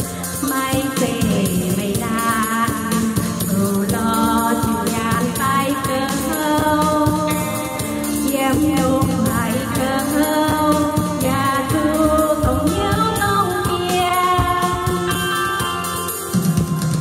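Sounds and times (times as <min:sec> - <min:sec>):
woman singing: 0:00.0 - 0:16.0
electronic keyboard: 0:00.0 - 0:17.0
light percussion beat: 0:00.0 - 0:17.0.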